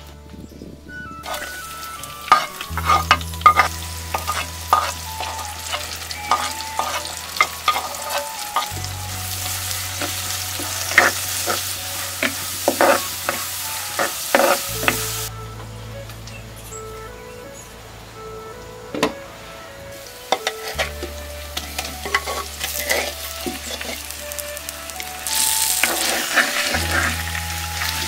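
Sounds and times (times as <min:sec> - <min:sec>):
onions sizzling in hot oil: 0:01.2 - 0:15.3, 0:19.9 - 0:28.0
spoon scraping a clay pot: 0:02.3 - 0:05.5.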